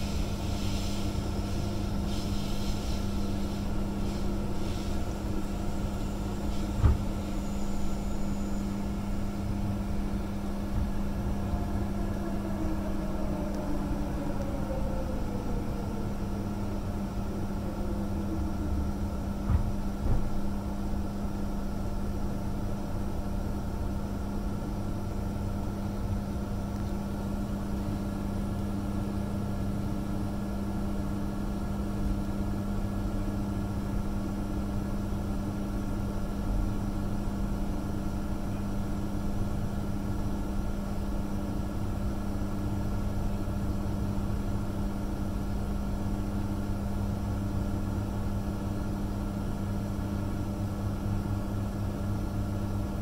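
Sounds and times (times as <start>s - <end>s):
train running rumble: 0.0s - 22.3s
electrical hum: 0.0s - 53.0s
train whine falling in pitch: 5.3s - 20.2s.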